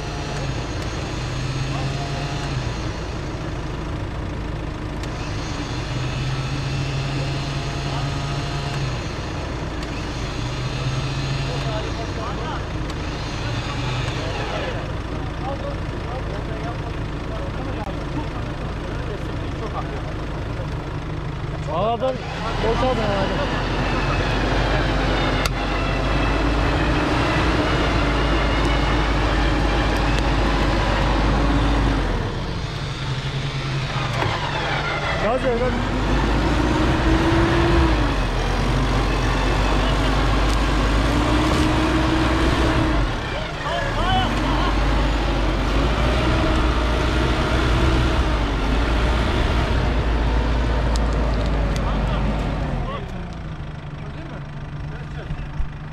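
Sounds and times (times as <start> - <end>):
diesel engine under load: 0.0 - 55.9
winch whine: 21.9 - 55.8.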